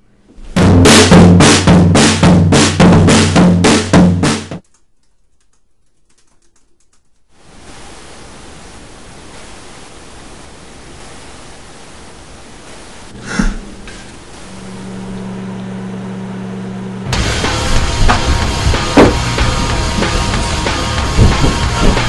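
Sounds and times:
snare drum and tom hits: 0.6 - 4.6, 17.1 - 22.0
faint clicks: 4.6 - 7.3
steady hiss: 7.3 - 15.6.

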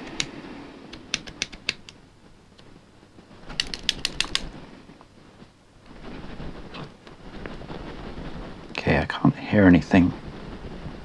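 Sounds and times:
padlock clicking and rattling: 3.6 - 4.5.

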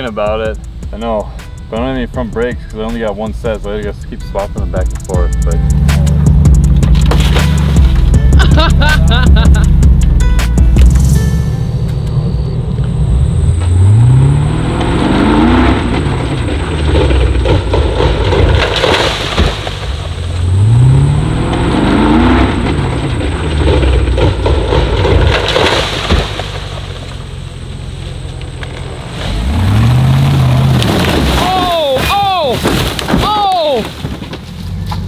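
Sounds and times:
car bouncing and crashing: 2.9 - 12.1, 12.8 - 35.0
small car engine revving: 12.0 - 27.2, 28.6 - 31.4.

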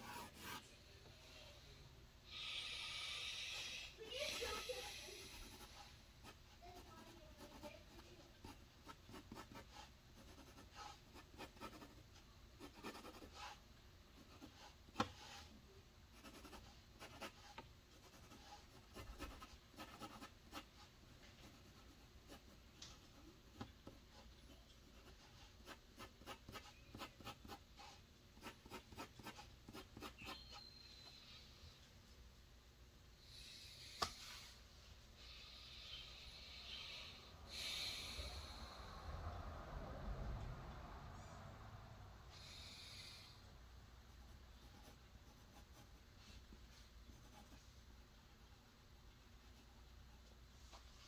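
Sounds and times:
drawing tool scratching: 0.0 - 0.7, 4.1 - 12.0, 12.6 - 13.6, 14.2 - 15.6, 16.2 - 30.7.

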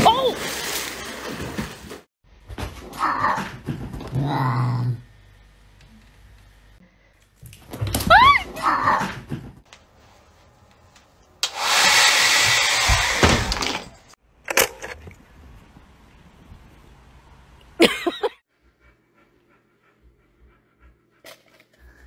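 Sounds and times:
hair dryer blowing: 11.4 - 13.3.

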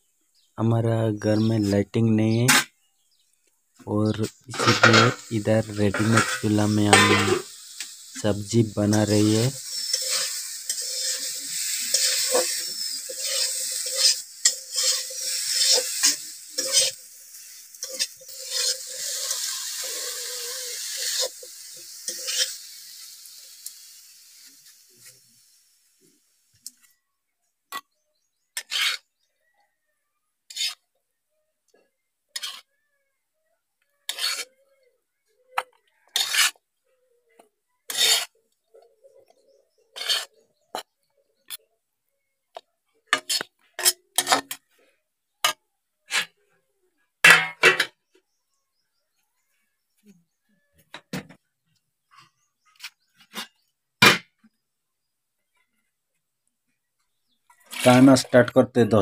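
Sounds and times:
metal spatula scraping a pan: 4.2 - 23.9, 28.6 - 29.1, 30.5 - 30.8, 32.3 - 32.7, 34.0 - 34.7, 35.6 - 36.6, 37.8 - 40.9, 43.1 - 44.8, 45.4 - 46.4, 47.2 - 48.0
food sizzling in hot oil: 4.2 - 26.8, 28.6 - 29.1, 32.4 - 32.7, 34.1 - 34.5, 36.1 - 36.6, 37.9 - 38.4, 40.0 - 40.9.

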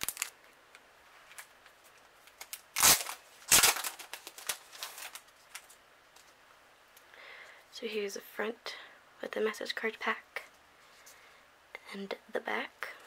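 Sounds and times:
packaging rustling: 0.0 - 0.4, 1.2 - 6.4.

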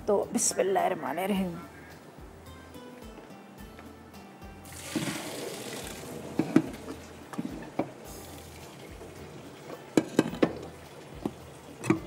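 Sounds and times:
water pouring into a colander: 4.7 - 6.4, 8.1 - 11.8
pot knocking on colander: 10.0 - 12.0.

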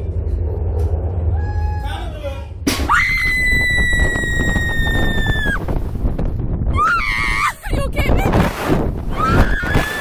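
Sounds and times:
low rumble: 0.0 - 9.7.

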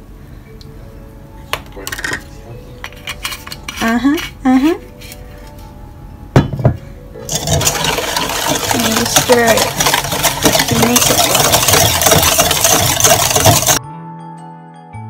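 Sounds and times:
soft background music: 0.0 - 15.0
utensils clinking on metal bowl: 2.8 - 4.5, 7.2 - 13.8.

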